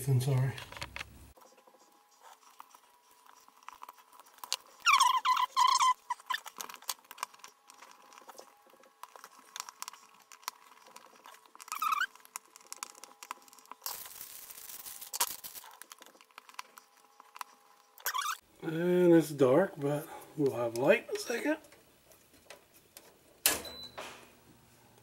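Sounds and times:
faint clicks taps and scrapes: 6.4s - 13.8s.

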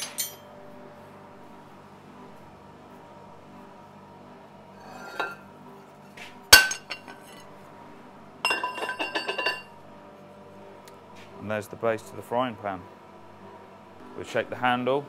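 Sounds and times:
rattling metallic clinks: 0.0s - 0.4s, 8.5s - 9.7s
metallic scrape: 4.8s - 5.5s.

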